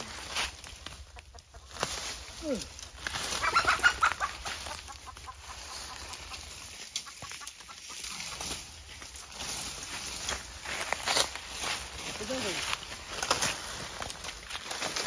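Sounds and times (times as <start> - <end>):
footsteps: 0.0 - 15.0
rustling in dry leaves: 0.0 - 15.0
chicken squawking and clucking: 1.0 - 1.8, 3.3 - 9.4.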